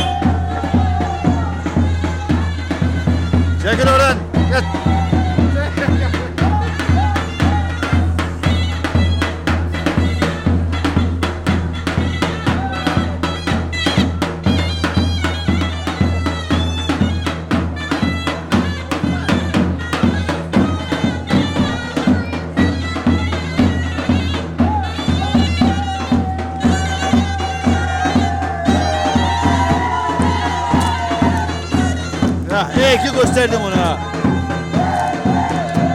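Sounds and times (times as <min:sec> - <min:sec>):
shrill reed pipe melody: 0:00.0 - 0:35.6
bass drum beating dance rhythm: 0:00.0 - 0:35.9.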